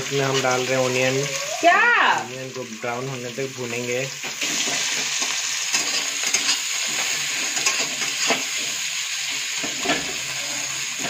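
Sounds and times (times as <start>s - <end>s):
onions sizzling in hot oil: 0.0s - 11.0s
metal spatula scraping pan: 4.4s - 11.0s.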